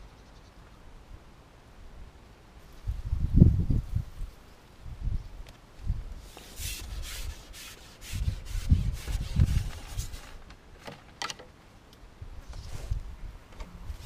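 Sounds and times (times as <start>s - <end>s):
fishing pole rubbing and scraping: 6.2s - 10.4s.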